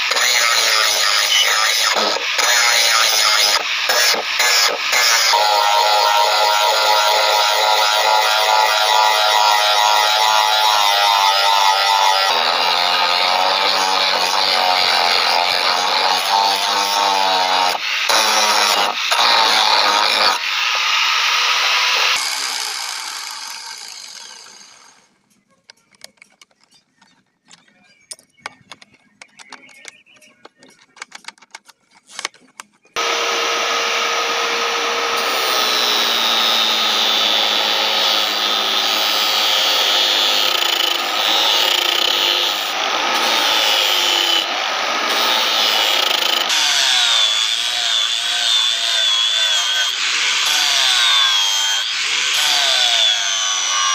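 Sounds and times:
angle grinder grinding steel: 0.0s - 25.1s, 33.0s - 53.9s
faint clicks and taps: 25.3s - 32.9s.

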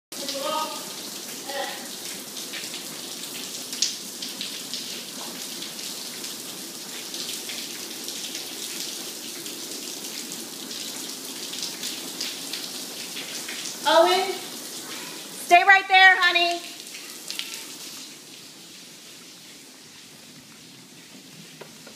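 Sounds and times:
water dripping and splashing on floor: 0.2s - 21.9s.

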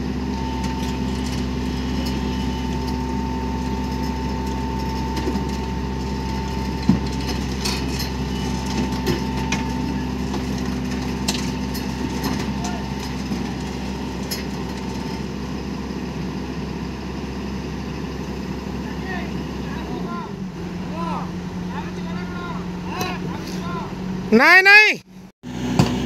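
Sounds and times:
heavy machine engine running: 0.0s - 24.4s, 25.1s - 26.0s
metal knocks and clanks: 0.6s - 15.3s.

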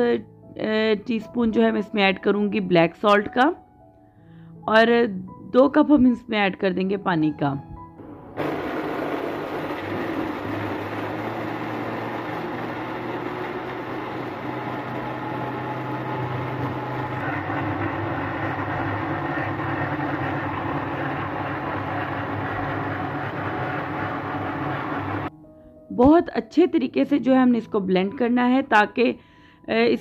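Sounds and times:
blender motor whirring: 8.4s - 25.3s.

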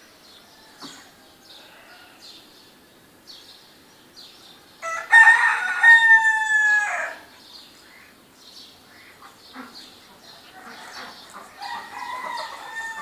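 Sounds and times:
small birds chirping: 0.0s - 5.1s, 7.1s - 13.0s
rooster crowing: 0.5s - 2.3s, 4.8s - 7.3s, 11.5s - 13.0s.

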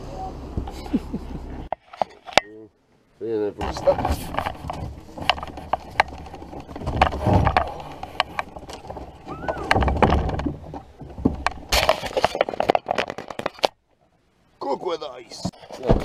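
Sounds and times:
low rumbles: 2.6s - 14.6s.

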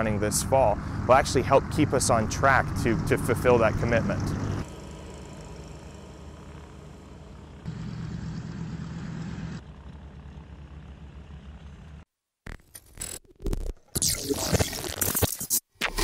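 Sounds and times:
aircraft radial engines droning: 0.0s - 12.0s
electronic crackles: 12.5s - 16.0s.

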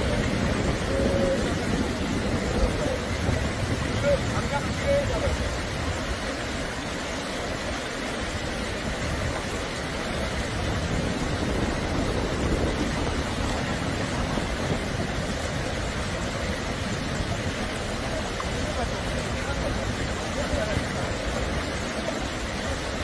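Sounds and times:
creek rushing over rocks: 0.0s - 23.0s.

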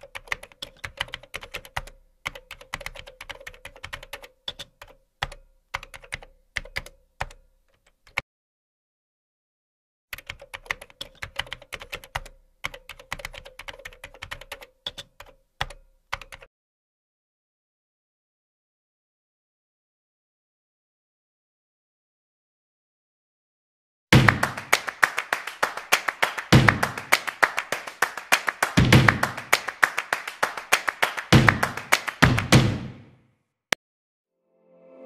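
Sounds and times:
fast keyboard typing: 0.0s - 8.2s, 10.1s - 16.5s, 24.2s - 32.8s.

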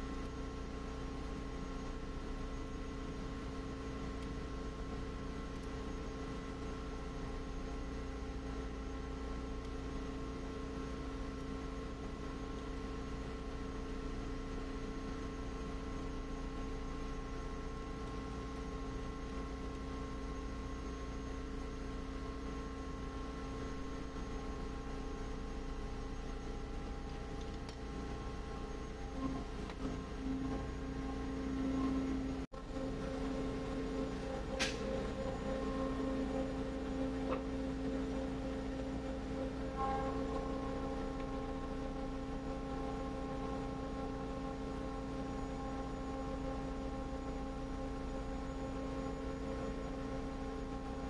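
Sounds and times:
machinery hum: 0.0s - 51.0s
pulsing low tone: 15.8s - 51.0s.

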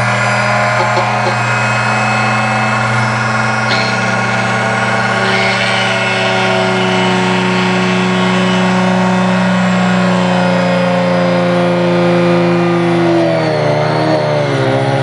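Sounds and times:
drill press boring into brass: 0.8s - 10.4s.

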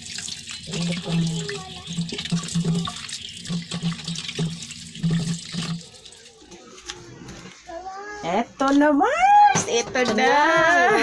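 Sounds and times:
water splashing and trickling: 0.0s - 6.6s.

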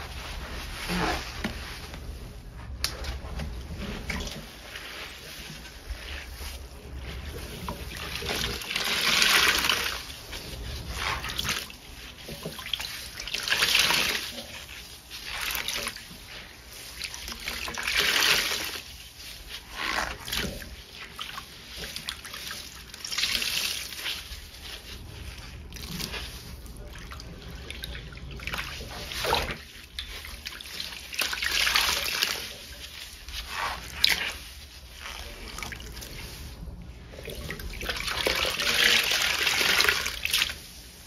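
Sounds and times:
sponges squishing: 0.0s - 41.0s
water trickling and splashing: 3.0s - 41.0s.

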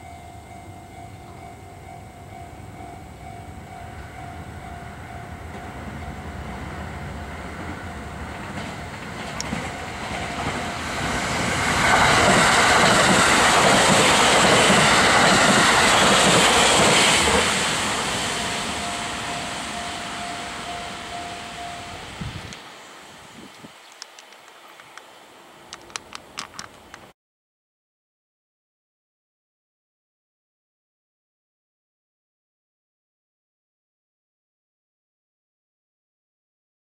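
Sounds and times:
level-crossing alarm bell: 0.0s - 11.2s, 17.8s - 22.3s
train rumble and wheel clatter: 0.0s - 27.1s.

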